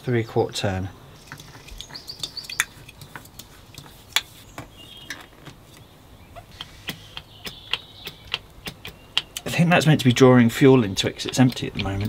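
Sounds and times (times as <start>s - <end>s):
sharp mechanical clicks: 6.5s - 9.5s.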